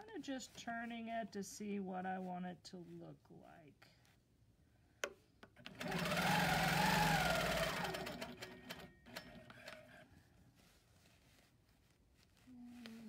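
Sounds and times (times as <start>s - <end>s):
quilting machine motor whine: 5.7s - 8.3s.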